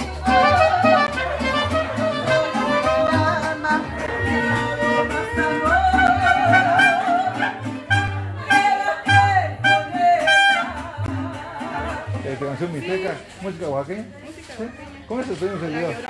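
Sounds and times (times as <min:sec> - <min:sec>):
strummed guitars: 0:00.0 - 0:12.7
violins playing melody: 0:00.2 - 0:08.6.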